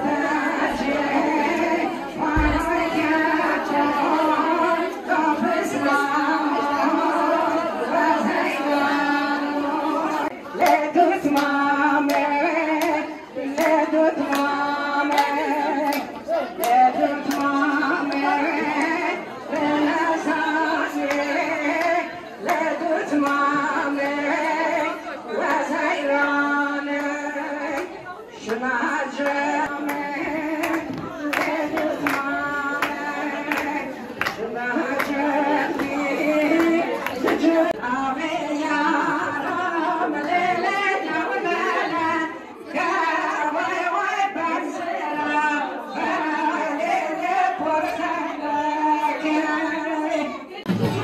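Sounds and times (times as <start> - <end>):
women singing folk song: 0.0 - 51.0
hand claps: 10.6 - 19.0, 29.2 - 37.8.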